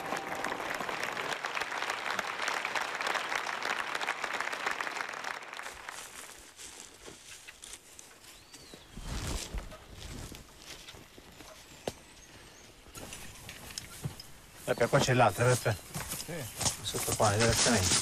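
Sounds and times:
crowd applauding: 0.0s - 6.4s
faint scattered clicks: 13.0s - 18.0s.

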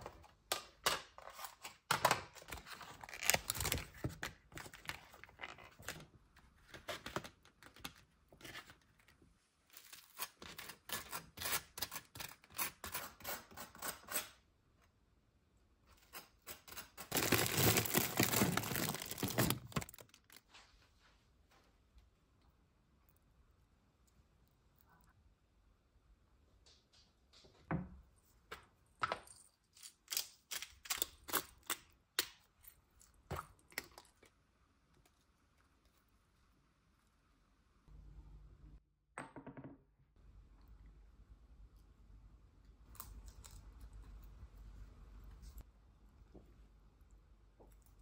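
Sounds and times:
loud crinkling: 16.9s - 20.4s.

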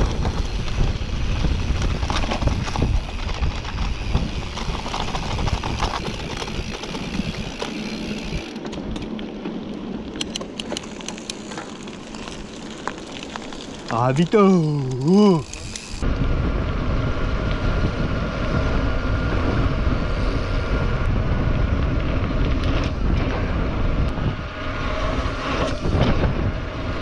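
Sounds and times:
wind rumble on microphone: 0.0s - 9.1s, 13.9s - 27.0s
bike tyres and frame rattling: 0.0s - 27.0s.

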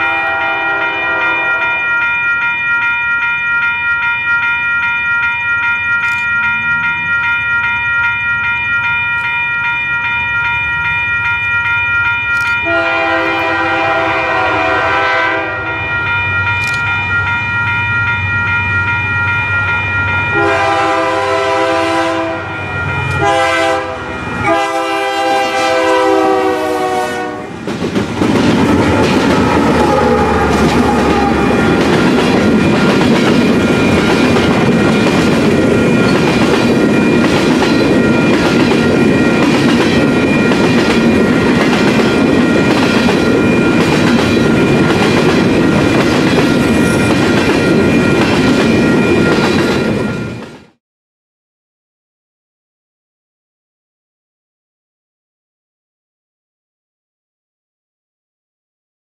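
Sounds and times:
locomotive air horn blasts: 0.0s - 1.9s, 12.6s - 15.8s, 20.4s - 22.6s, 23.2s - 27.6s
passing train engine and wheels: 0.0s - 50.8s
railroad crossing bell ringing: 0.0s - 50.8s.

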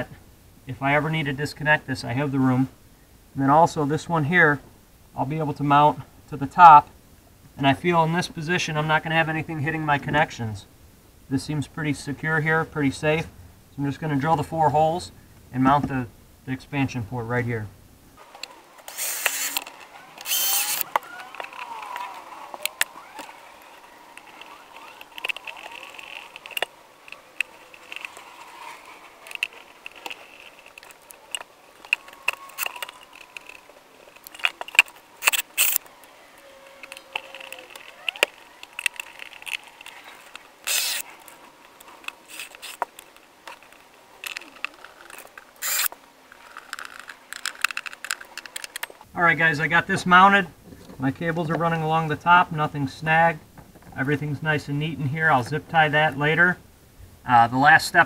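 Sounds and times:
cordless drill running: 18.2s - 46.9s
handling clicks and knocks: 18.2s - 49.1s.

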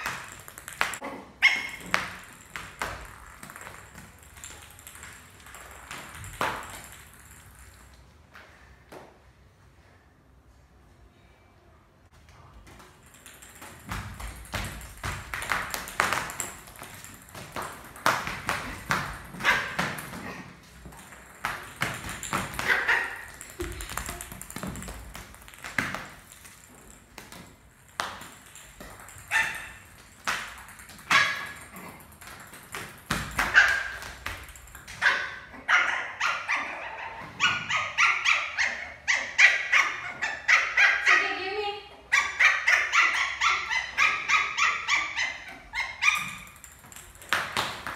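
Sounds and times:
plastic bat and ball tapping tiles: 0.0s - 8.2s, 12.5s - 35.5s, 45.3s - 47.9s
puppy barking and yipping: 22.6s - 23.3s, 35.0s - 41.3s, 42.1s - 46.4s.

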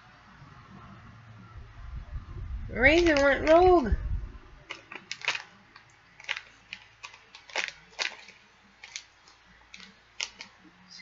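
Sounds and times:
plastic pouch crinkling: 4.6s - 10.8s.

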